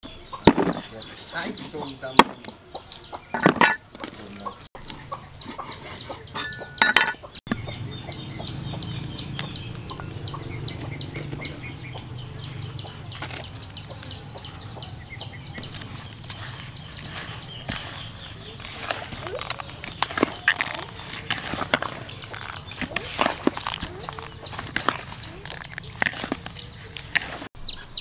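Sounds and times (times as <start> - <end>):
chickens clucking: 0.0 - 28.0
cleaver striking wooden board: 0.5 - 0.8, 2.2 - 2.5.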